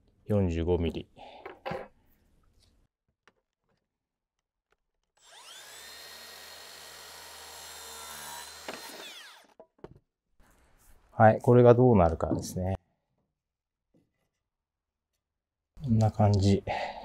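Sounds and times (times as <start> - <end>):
circular saw cutting wood: 5.2 - 9.6.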